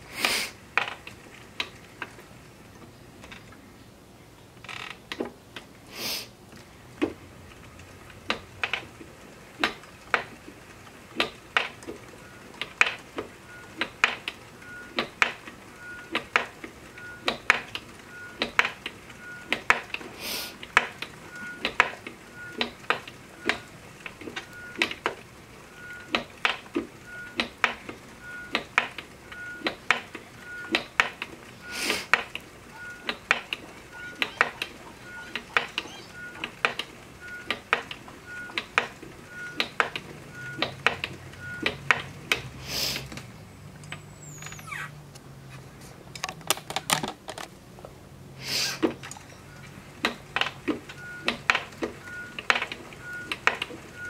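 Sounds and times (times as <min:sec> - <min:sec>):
brief hisses: 0:00.1 - 0:00.6, 0:05.9 - 0:06.3, 0:42.6 - 0:43.1, 0:48.4 - 0:48.8
spinning wheel clicking and clacking: 0:07.6 - 0:42.5.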